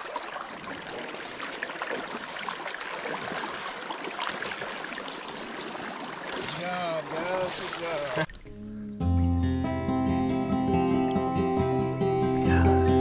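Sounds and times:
small water splashes: 0.0 - 8.6
shallow river water running: 0.0 - 9.0.

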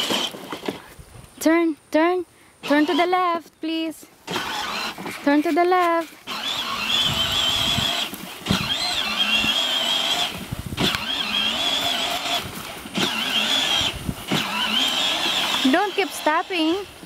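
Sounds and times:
electric toy car motor whine: 0.0 - 0.7, 4.3 - 5.2, 6.2 - 17.0.

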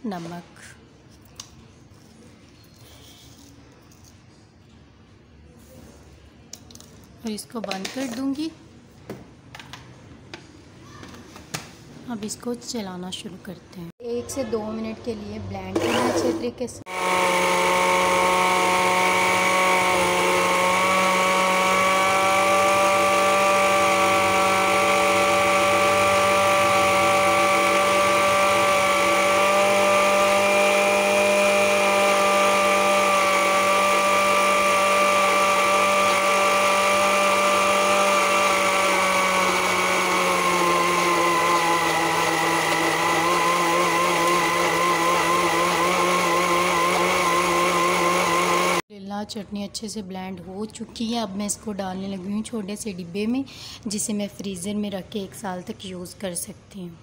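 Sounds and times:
blender motor whining: 15.8 - 48.9.

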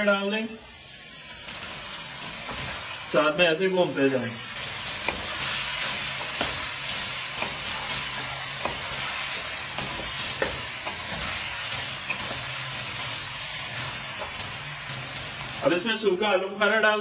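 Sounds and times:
chicken sizzling in oil: 0.0 - 17.0
wooden spatula scraping pan: 4.7 - 15.6.

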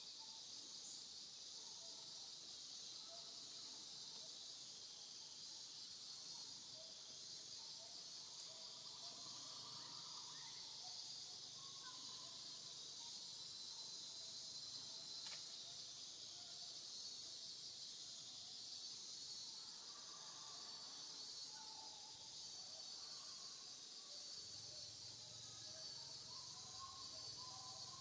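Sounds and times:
faint chirps: 0.0 - 28.0.

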